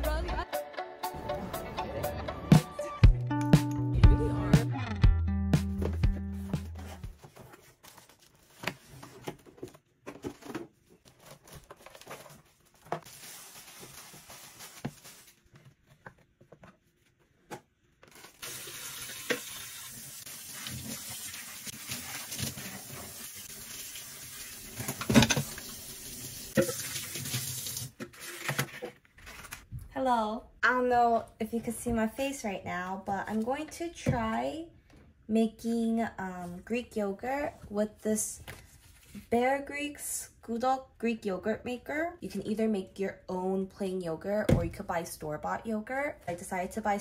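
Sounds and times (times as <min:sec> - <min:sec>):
water running from tap: 0:18.4 - 0:28.0.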